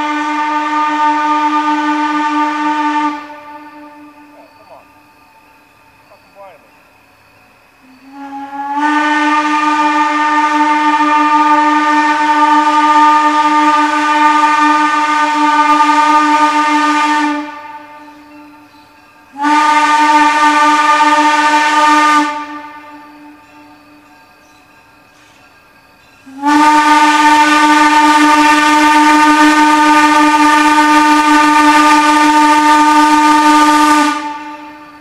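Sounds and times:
steam whistle blasts: 0:00.0 - 0:04.9, 0:07.8 - 0:24.0, 0:26.2 - 0:35.0.

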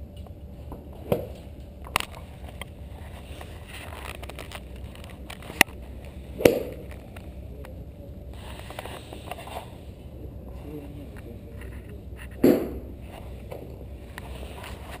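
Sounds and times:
low background noise: 0:00.0 - 0:15.0
golf club striking ball: 0:06.4 - 0:06.9, 0:12.4 - 0:12.9.

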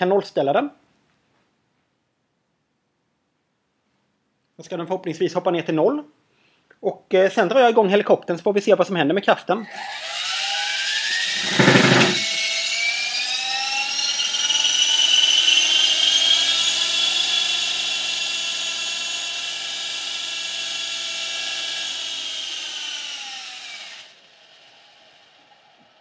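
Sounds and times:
model helicopter motor whining: 0:09.6 - 0:26.0
helicopter rattling on platform: 0:11.4 - 0:12.4.

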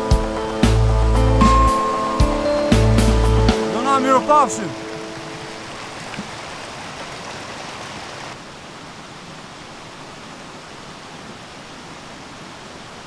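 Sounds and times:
rushing mountain stream: 0:00.0 - 0:13.0.

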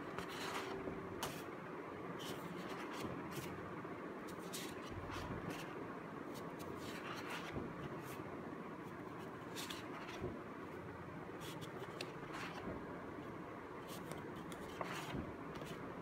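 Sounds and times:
paper rustling and scraping: 0:00.0 - 0:01.5, 0:02.2 - 0:03.6, 0:04.3 - 0:08.2, 0:08.9 - 0:10.4, 0:11.4 - 0:12.8, 0:13.9 - 0:15.9.

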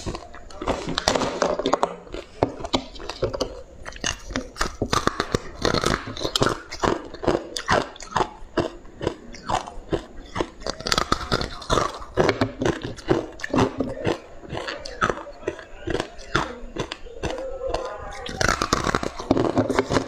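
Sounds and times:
teeth crunching ice: 0:00.0 - 0:20.0.

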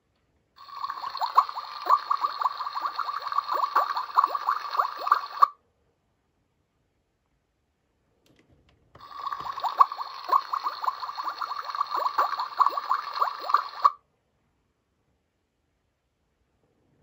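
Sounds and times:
toy bubbling electronic sound effect: 0:00.6 - 0:05.5, 0:09.0 - 0:14.0.

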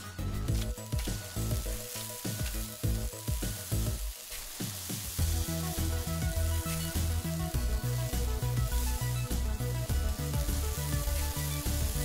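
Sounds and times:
background music with plucked notes: 0:00.0 - 0:12.0
sand crumbled by hand: 0:00.5 - 0:09.5.

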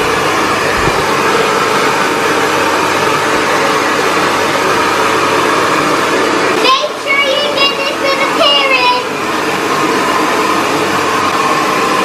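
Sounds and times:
hair dryer blowing: 0:00.0 - 0:12.0.

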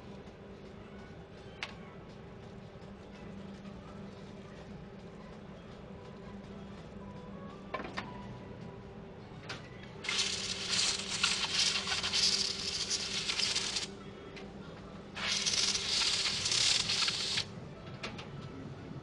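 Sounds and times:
spray gun air hiss: 0:10.0 - 0:13.9, 0:15.2 - 0:17.5.

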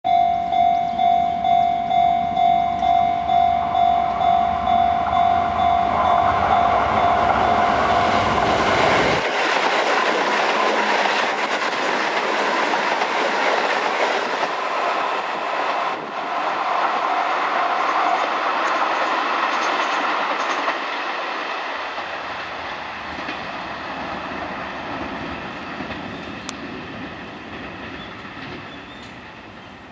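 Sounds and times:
level crossing bell ringing: 0:00.0 - 0:08.2
electric train passing: 0:00.1 - 0:29.9.

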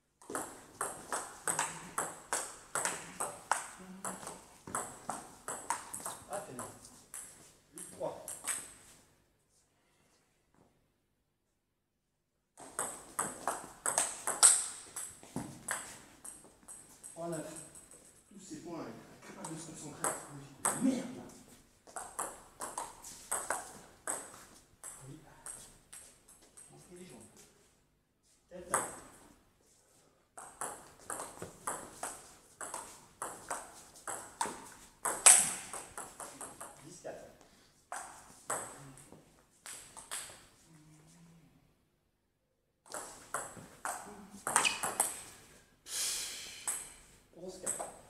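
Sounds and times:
ball clicking off bats: 0:00.2 - 0:07.3, 0:12.6 - 0:17.9
table tennis ball hits: 0:00.2 - 0:07.4, 0:12.6 - 0:17.8, 0:21.9 - 0:25.6, 0:30.4 - 0:36.8, 0:37.9 - 0:39.1, 0:42.9 - 0:45.3, 0:46.6 - 0:47.0.

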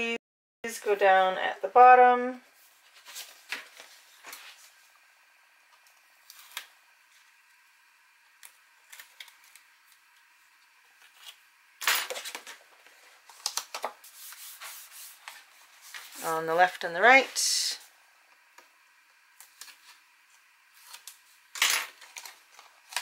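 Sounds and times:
paper rustling: 0:02.6 - 0:04.8, 0:12.1 - 0:16.3.

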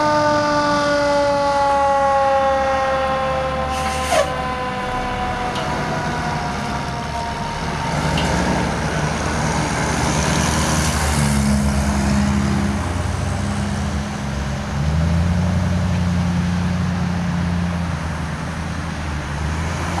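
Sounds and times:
siren: 0:00.0 - 0:10.5
vehicle engines passing: 0:00.0 - 0:20.0
pickup truck engine: 0:03.8 - 0:20.0.

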